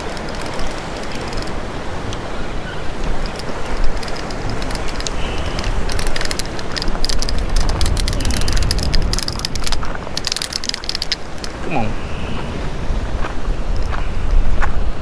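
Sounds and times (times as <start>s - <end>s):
sharp clicks and scrapes: 0.0s - 1.6s, 3.0s - 11.6s
surf washing against rocks: 0.0s - 14.0s
wind buffeting microphone: 0.0s - 15.0s.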